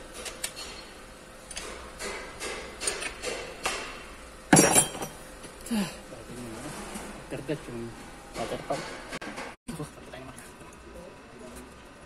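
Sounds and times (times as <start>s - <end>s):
metal tools clinking and knocking: 4.5s - 5.2s.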